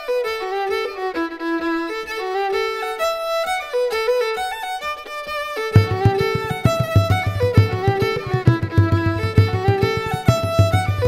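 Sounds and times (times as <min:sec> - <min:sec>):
lively background music: 0:05.8 - 0:11.0.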